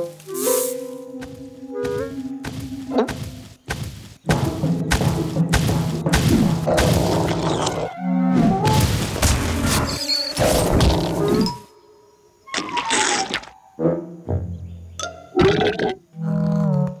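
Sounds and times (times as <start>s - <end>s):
comic thumps and crashes: 2.4s - 7.8s, 8.4s - 11.1s.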